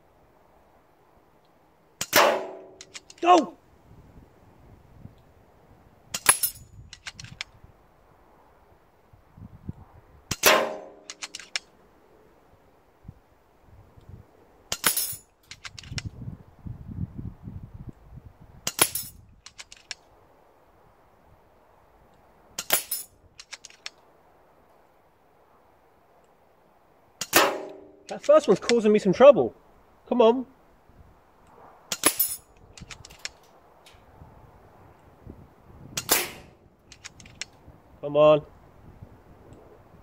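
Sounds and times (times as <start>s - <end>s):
air rifle shots: 2.0s - 3.2s, 10.3s - 11.6s, 27.2s - 28.1s, 35.9s - 37.3s
faint clicks: 36.8s - 37.6s.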